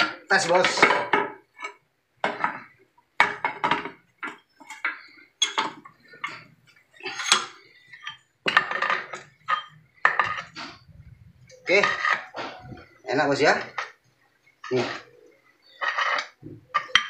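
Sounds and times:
metal clanks and clinks: 0:00.0 - 0:10.8.

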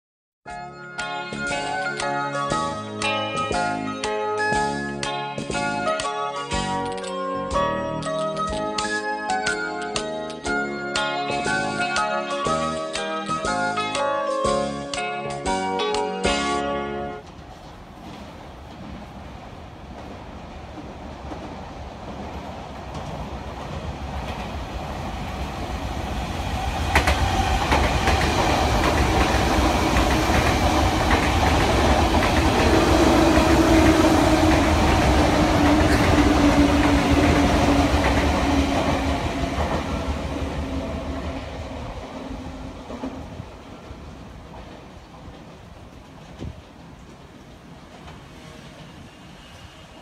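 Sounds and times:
train rumble and wheel clatter: 0:17.2 - 0:50.0.

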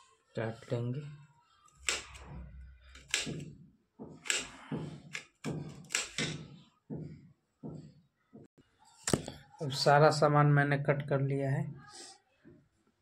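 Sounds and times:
knife chopping on steel plate: 0:04.2 - 0:06.5.

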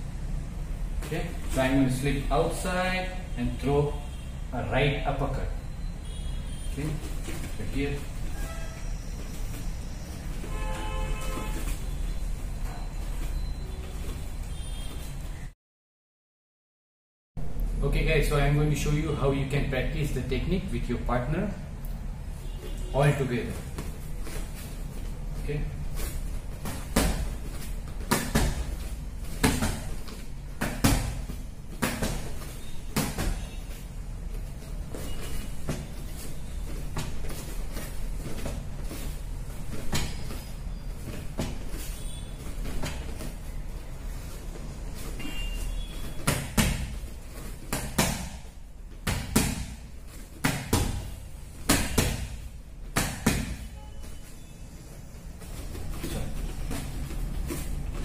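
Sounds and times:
boxing gloves smacking: 0:26.5 - 0:33.6, 0:45.9 - 0:53.8.

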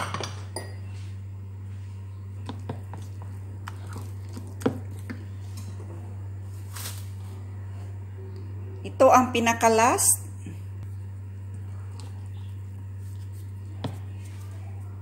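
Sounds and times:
steady low hum: 0:00.0 - 0:15.0
spatula squishing batter: 0:02.4 - 0:06.0, 0:10.8 - 0:15.0.

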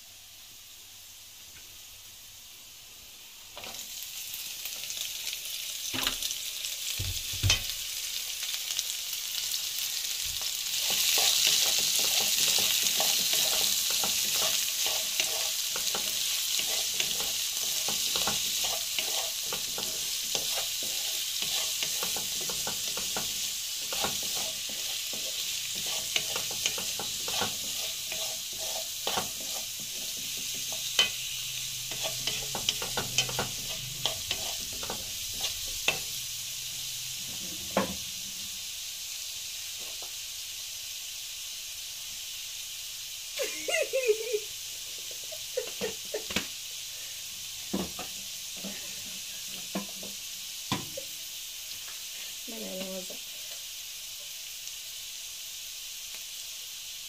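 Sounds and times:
vegetables sizzling in hot oil: 0:00.0 - 0:57.0
spatula scraping and tapping pan: 0:10.4 - 0:36.1, 0:47.7 - 0:51.0.

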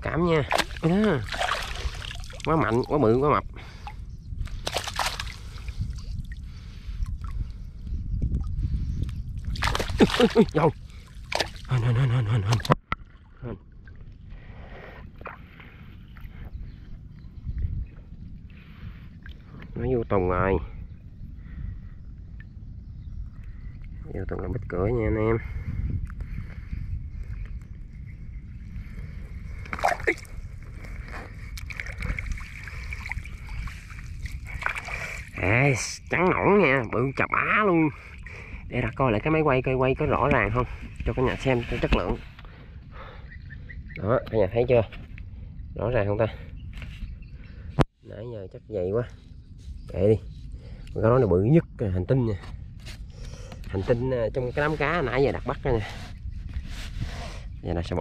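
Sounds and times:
water splashing and trickling: 0:00.0 - 0:16.5, 0:29.5 - 0:43.1
steady low rumble: 0:00.0 - 0:58.0.

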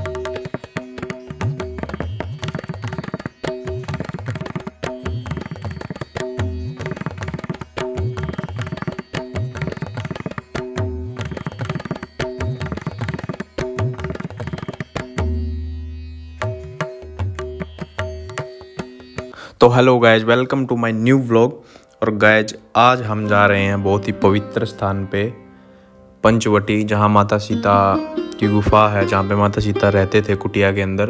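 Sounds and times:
instrumental music with rapid drums: 0:00.0 - 0:15.4, 0:16.5 - 0:19.4.

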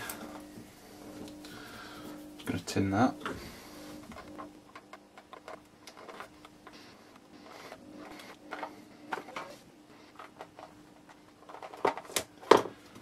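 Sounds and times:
low steady hum: 0:00.0 - 0:13.0
clicks and rustles of small parts: 0:04.0 - 0:13.0.

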